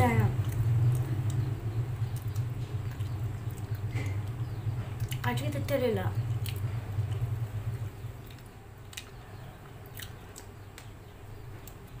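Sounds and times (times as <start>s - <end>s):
low hum: 0.0s - 12.0s
person chewing soft food: 0.3s - 5.3s, 6.2s - 12.0s
wet mouth clicks: 5.0s - 5.3s, 6.3s - 7.3s.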